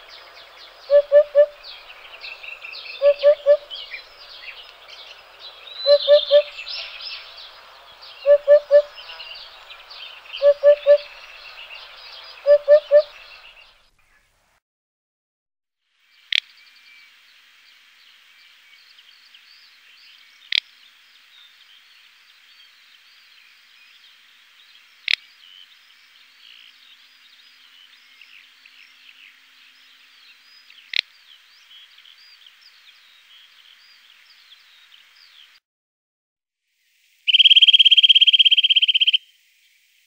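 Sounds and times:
hiss with faint high chirps: 0.0s - 14.6s, 15.9s - 35.6s, 36.6s - 40.0s
sharp loud chirp: 37.3s - 39.2s.

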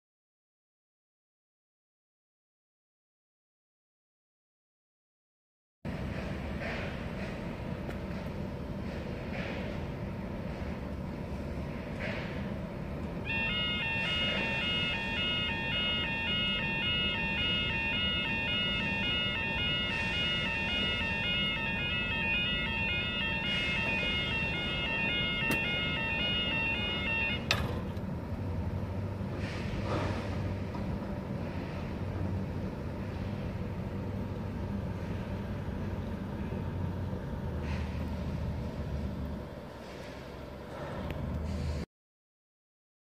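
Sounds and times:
level crossing warbling alarm: 13.2s - 27.6s.

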